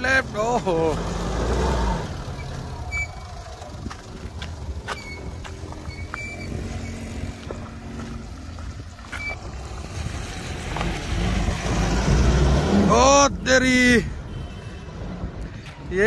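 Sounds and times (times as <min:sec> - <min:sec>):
car engine under load: 0:00.0 - 0:13.8.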